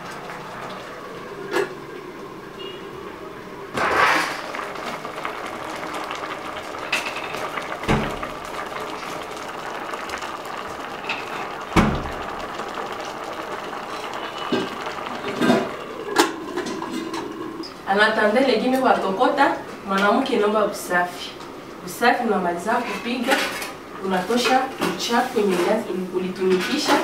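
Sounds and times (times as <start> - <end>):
pot boiling with bubbling hiss: 0.0 - 27.0.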